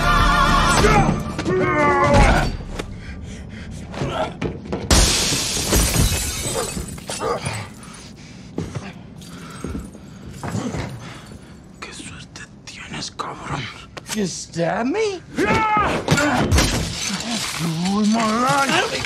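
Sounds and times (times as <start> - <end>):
glass shattering: 4.9 - 7.9, 16.2 - 19.0.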